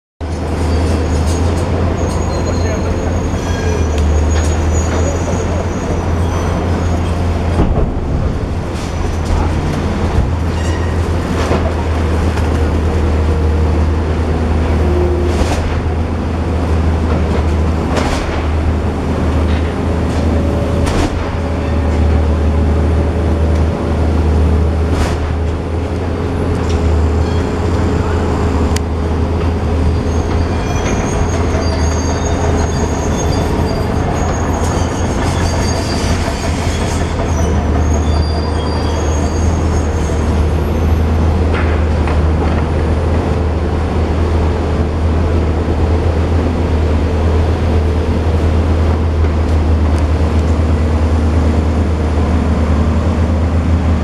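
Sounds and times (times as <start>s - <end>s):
diesel engine humming: 0.4s - 35.3s, 37.4s - 54.0s
thin metallic squeals: 0.6s - 7.4s, 29.9s - 40.4s.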